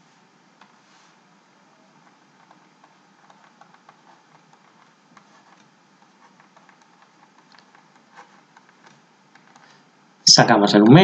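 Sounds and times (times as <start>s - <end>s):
steady low hiss: 0.0s - 11.0s
stylus ticking on writing surface: 2.0s - 9.7s.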